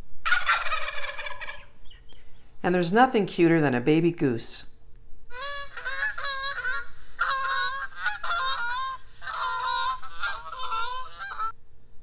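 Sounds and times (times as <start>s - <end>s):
geese honking: 5.3s - 11.6s.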